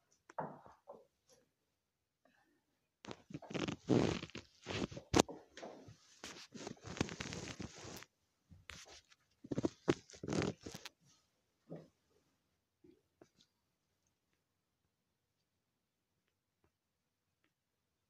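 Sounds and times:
close rustling and scraping: 3.1s - 11.3s.

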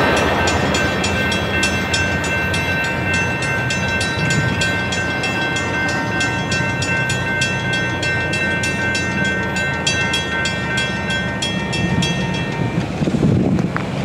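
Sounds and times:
railroad crossing bell ringing: 0.0s - 13.5s.

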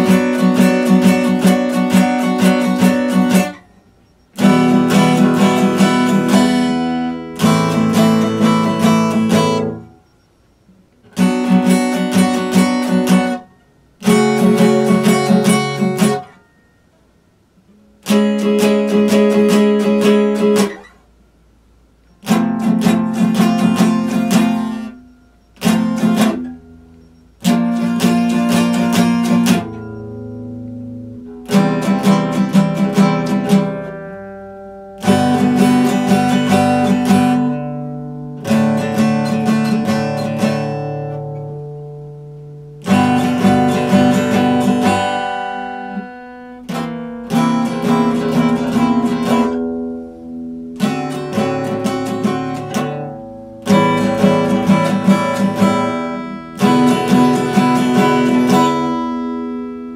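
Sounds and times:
acoustic guitar strumming chords: 0.0s - 59.9s.

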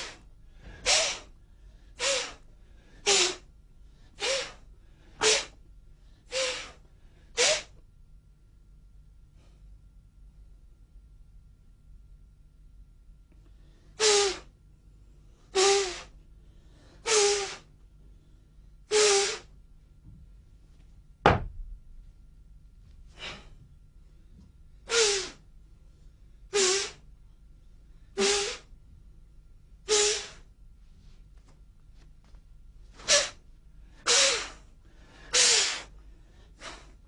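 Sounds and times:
sharp thump: 21.2s - 21.7s.

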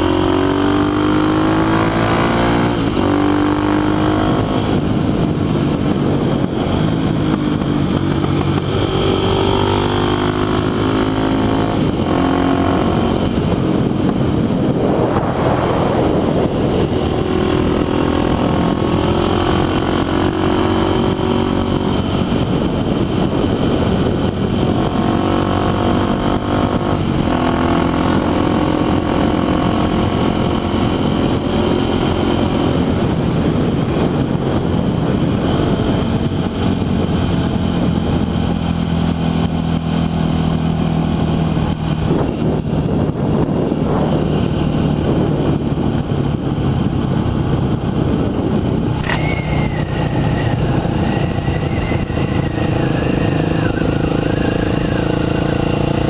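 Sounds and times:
motorcycle engine running: 0.0s - 56.0s
wind noise: 0.0s - 56.0s.

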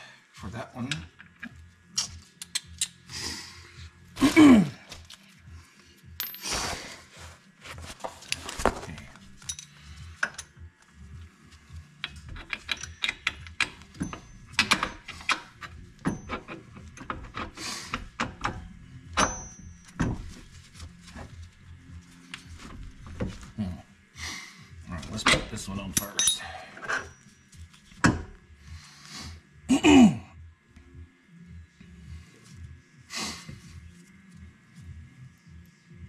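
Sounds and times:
metal clicks and knocks: 12.0s - 19.4s.

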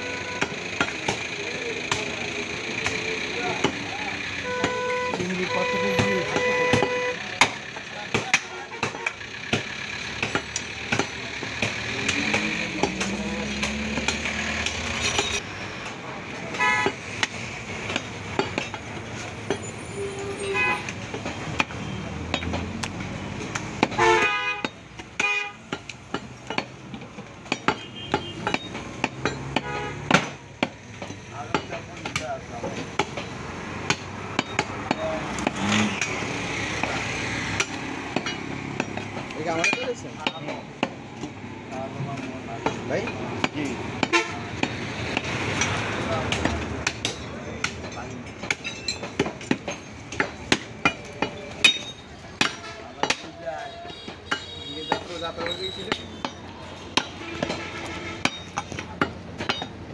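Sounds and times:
vehicle horns tooting: 0.0s - 1.6s, 2.9s - 9.2s, 16.5s - 17.2s, 19.5s - 22.3s, 23.8s - 25.8s, 27.6s - 30.4s, 44.0s - 45.7s, 52.3s - 58.8s
traffic: 0.0s - 59.9s
voices: 0.0s - 59.9s.

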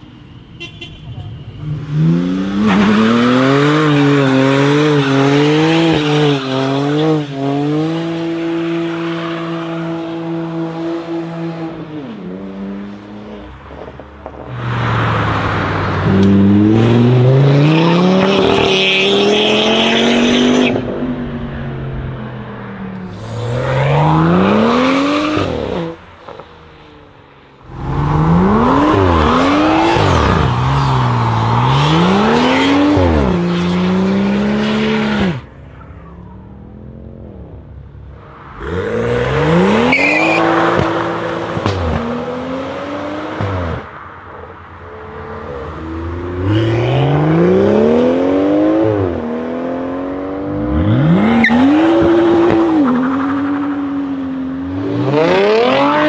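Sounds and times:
car engine revving: 10.1s - 44.0s, 45.2s - 56.0s.

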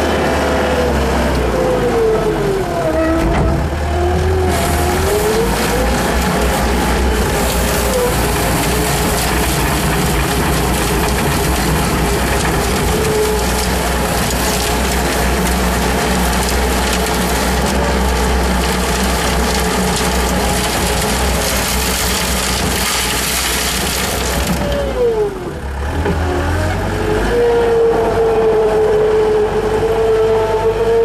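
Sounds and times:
low engine drone: 0.0s - 31.0s
broom sweeping gravel: 4.5s - 24.4s.

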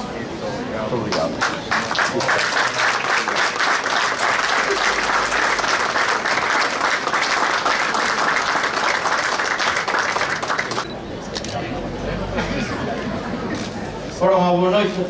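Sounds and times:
crowd applauding: 1.1s - 10.9s.

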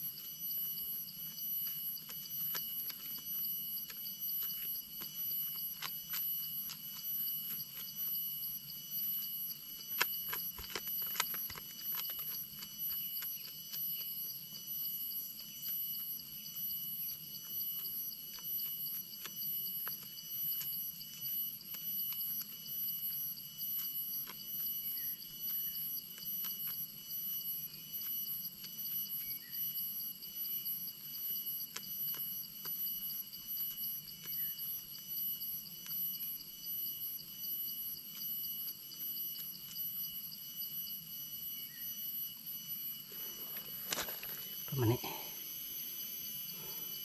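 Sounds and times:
faint ticks and rustles: 0.0s - 41.0s
forest insects chorus: 0.0s - 47.0s.

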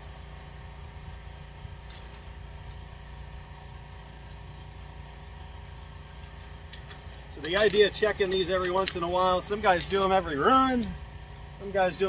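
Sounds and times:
metallic clinks of hand tools: 6.8s - 9.1s.

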